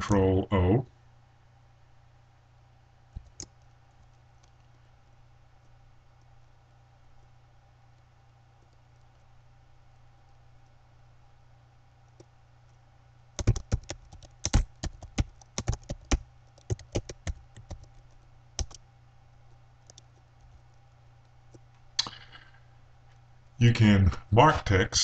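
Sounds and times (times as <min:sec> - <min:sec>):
computer keyboard typing: 0:03.2 - 0:04.7, 0:13.4 - 0:18.8, 0:19.8 - 0:20.8.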